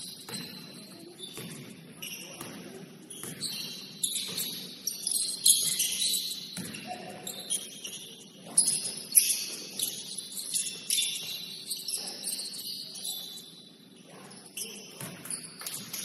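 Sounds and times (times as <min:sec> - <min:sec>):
sneakers squeaking on floor: 0:00.0 - 0:16.0
basketball bouncing: 0:00.1 - 0:01.8, 0:02.4 - 0:04.6, 0:05.5 - 0:06.9, 0:15.0 - 0:16.0.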